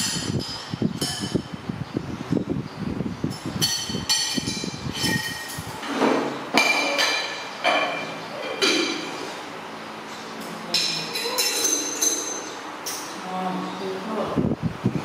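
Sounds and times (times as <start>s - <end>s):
ceramic bowls clinking: 3.3s - 9.4s, 10.7s - 13.2s.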